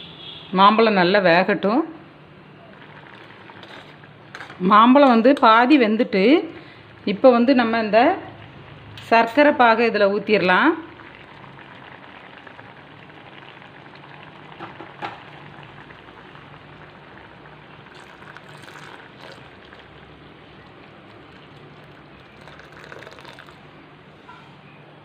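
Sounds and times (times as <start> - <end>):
water bubbling in a pan: 2.4 - 4.5, 6.6 - 23.8
syrup pouring into a pan: 2.7 - 4.0, 10.9 - 23.6.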